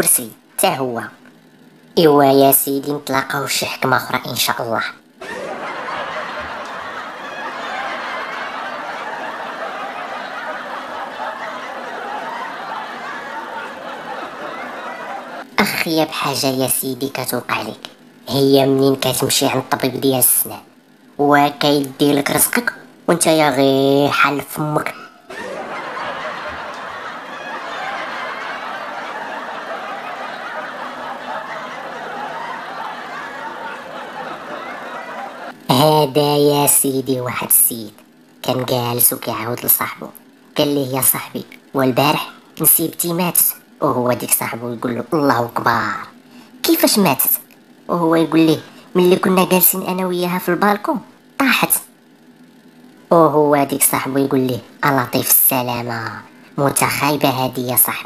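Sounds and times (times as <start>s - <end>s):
crowd laughing: 5.1s - 16.4s, 24.4s - 35.8s, 38.5s - 46.9s.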